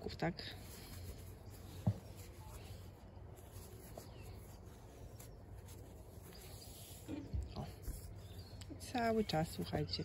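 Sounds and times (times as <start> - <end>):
crocheting with thick yarn: 0.0 - 10.0
soft thump: 1.7 - 2.2.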